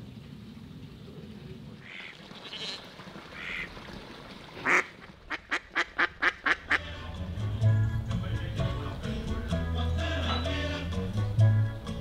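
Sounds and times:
ducks quacking: 1.8 - 3.8, 4.6 - 7.0.

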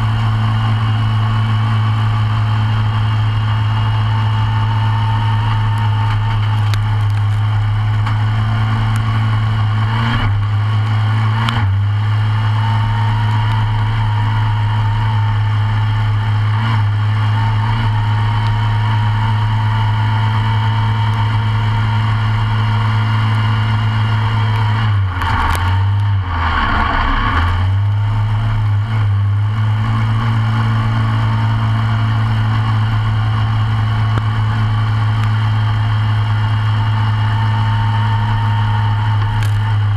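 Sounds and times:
kart engine idling: 0.0 - 39.9.

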